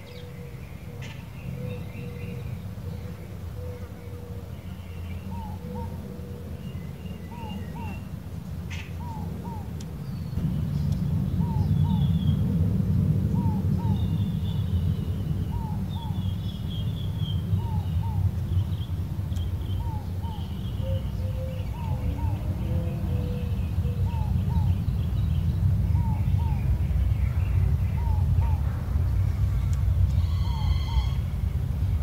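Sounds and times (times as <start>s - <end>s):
small birds chirping: 0.0s - 32.0s
steady low rumble: 0.0s - 32.0s
dove cooing: 0.2s - 4.5s, 5.3s - 6.6s, 19.8s - 24.7s, 30.2s - 31.2s.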